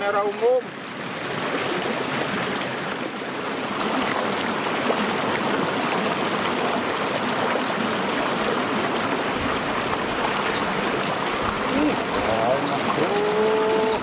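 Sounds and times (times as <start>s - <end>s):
water running over rocks: 0.0s - 14.0s.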